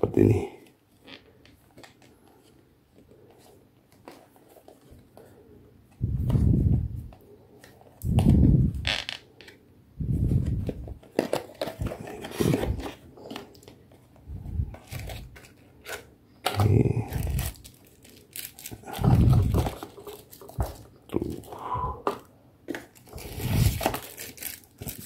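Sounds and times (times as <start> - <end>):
cardboard and paper rustling: 10.2 - 21.5, 22.9 - 25.0.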